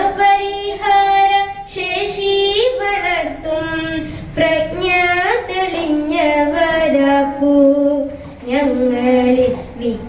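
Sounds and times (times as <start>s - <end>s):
girl singing into a microphone: 0.0s - 10.0s.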